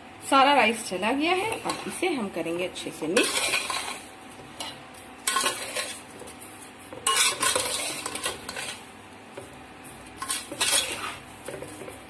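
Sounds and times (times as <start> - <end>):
metal spoon scraping a pot: 3.2 - 6.1, 7.0 - 8.9, 10.2 - 11.9.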